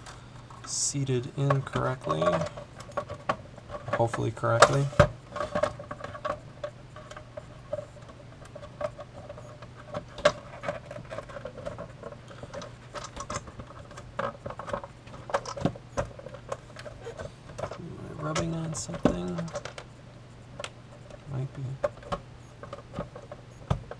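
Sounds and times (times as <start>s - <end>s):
steady low hum: 0.0s - 23.9s
plastic clicks and scrapes: 1.4s - 19.9s.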